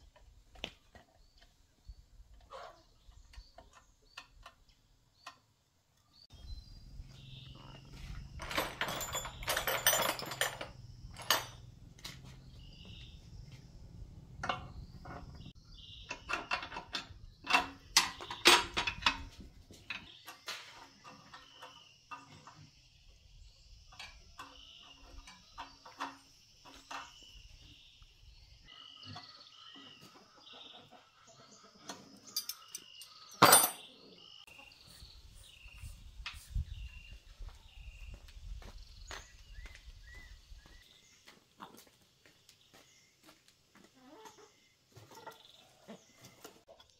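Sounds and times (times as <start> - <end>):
metal tools clinking: 7.6 - 12.4, 32.2 - 33.9.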